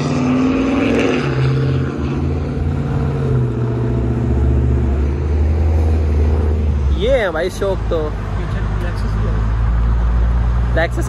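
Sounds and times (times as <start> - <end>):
street traffic noise: 0.0 - 11.0.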